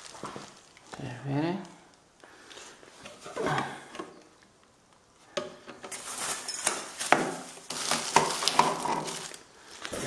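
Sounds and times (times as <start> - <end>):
plastic packaging crinkling: 0.0 - 1.0, 5.9 - 10.0.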